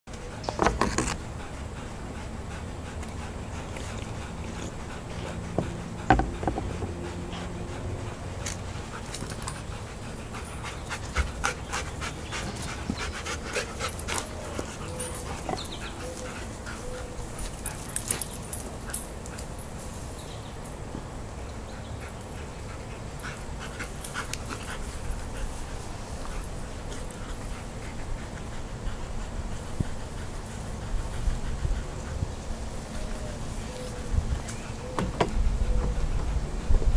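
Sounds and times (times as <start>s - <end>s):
dogs panting: 0.1s - 36.9s
dog whimpers: 14.1s - 17.2s.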